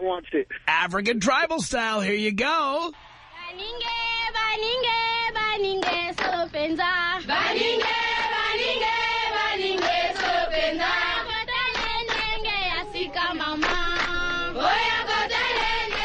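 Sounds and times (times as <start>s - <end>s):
choir chanting in held notes: 7.3s - 11.4s, 13.0s - 16.0s.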